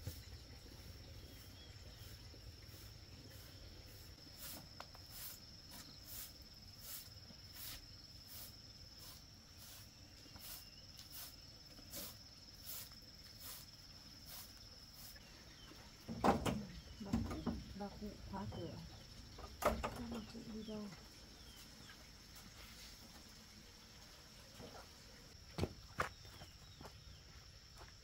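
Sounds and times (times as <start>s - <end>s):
insect high-pitched trill: 0.0s - 15.7s
insect short chirps: 0.1s - 15.7s.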